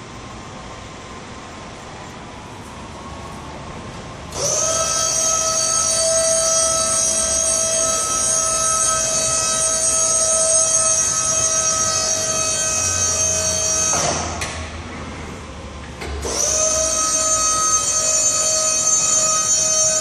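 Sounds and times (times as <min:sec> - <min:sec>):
electric motor whining: 0:04.3 - 0:14.0.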